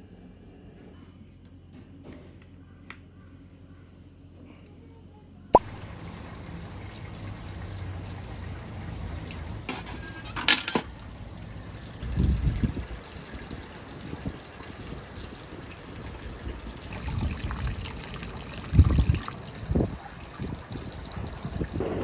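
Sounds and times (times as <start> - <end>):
outdoor background noise: 0.0 - 22.0
coin clinking into fee box: 10.1 - 10.9.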